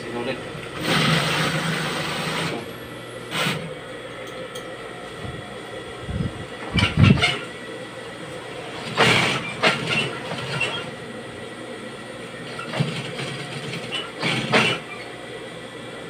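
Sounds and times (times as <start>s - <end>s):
sewing machine motor hum: 0.0s - 3.9s, 5.1s - 16.0s
sewing machine stitching: 0.8s - 2.6s, 8.8s - 10.9s, 12.5s - 15.0s.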